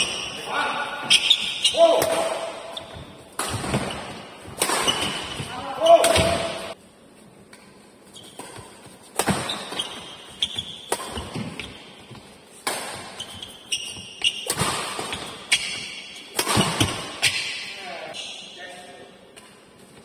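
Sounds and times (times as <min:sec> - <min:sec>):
badminton racket hitting shuttlecock: 0:00.0 - 0:06.8, 0:08.3 - 0:11.9, 0:12.6 - 0:17.7.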